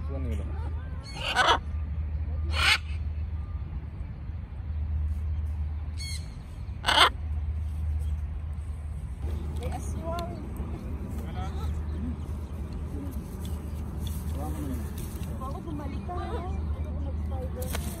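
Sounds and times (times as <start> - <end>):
macaws squawking: 6.8 - 7.1.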